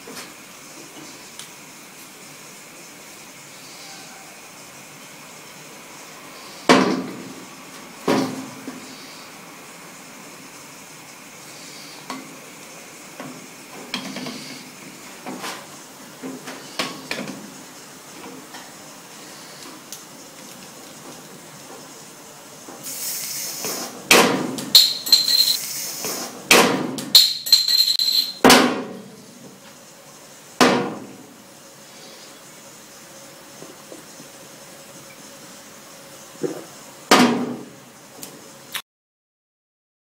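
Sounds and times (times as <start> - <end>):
glass bottle clinks: 24.8 - 25.6, 27.2 - 28.4.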